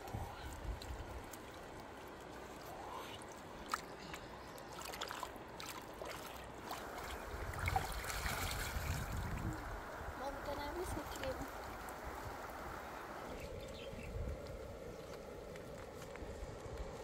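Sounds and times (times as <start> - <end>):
small splashes and drips: 0.0 - 9.8
water sloshing and trickling: 0.0 - 13.2.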